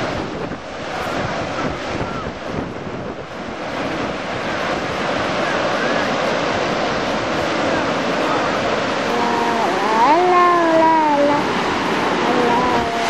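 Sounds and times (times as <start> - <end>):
rough surf breaking: 0.0 - 13.0
wind buffeting microphone: 0.0 - 13.0.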